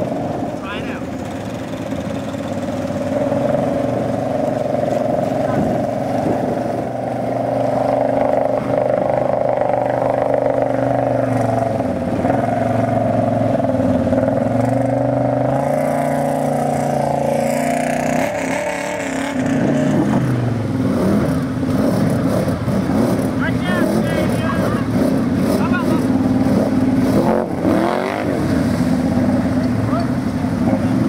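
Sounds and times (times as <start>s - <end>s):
atv engine revving: 0.0s - 31.0s
water splashing: 0.0s - 31.0s.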